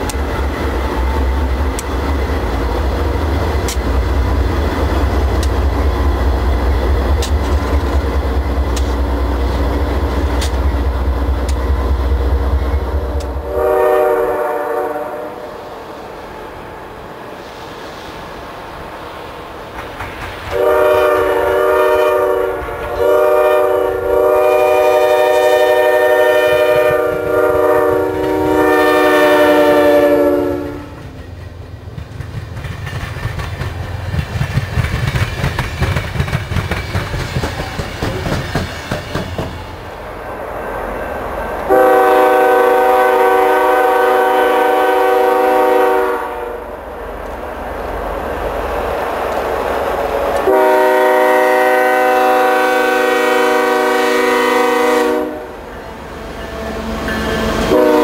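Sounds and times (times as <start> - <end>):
train cars rumbling and clacking: 0.0 - 58.0
train air horn blasts: 13.2 - 15.6, 20.5 - 31.2, 41.7 - 46.7, 50.4 - 58.0.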